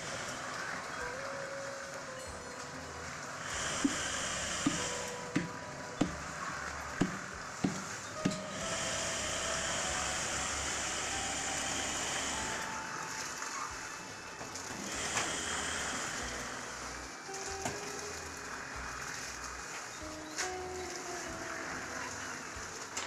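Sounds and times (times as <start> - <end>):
concrete mixer whirring: 7.0 - 19.5.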